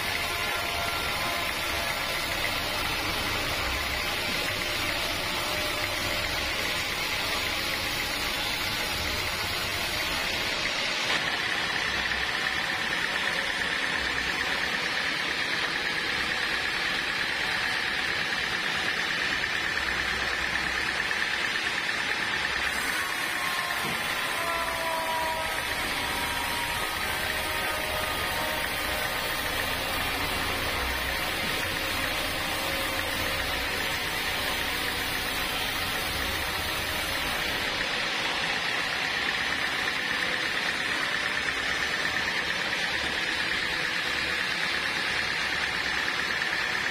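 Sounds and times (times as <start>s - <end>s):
band saw cutting wood: 0.0s - 46.9s
high saw whine: 0.0s - 46.9s.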